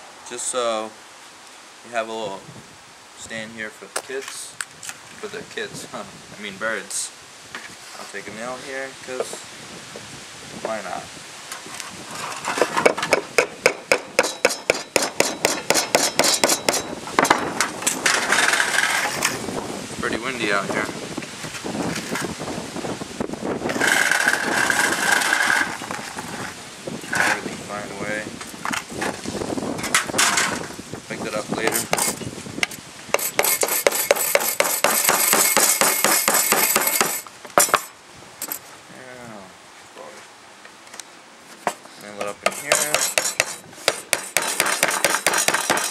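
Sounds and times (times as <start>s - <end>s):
hammer striking nail into board: 12.8s - 17.6s, 31.6s - 32.2s, 33.1s - 37.9s, 42.4s - 45.9s.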